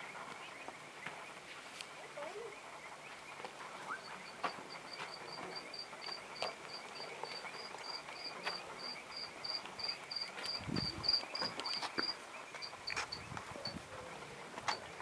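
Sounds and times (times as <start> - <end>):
insect chirping: 4.0 - 13.8.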